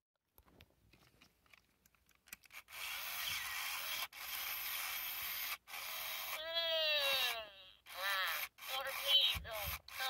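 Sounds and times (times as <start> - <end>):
toy motor whirring: 2.3 - 10.0
high-pitched toy call: 6.1 - 10.0.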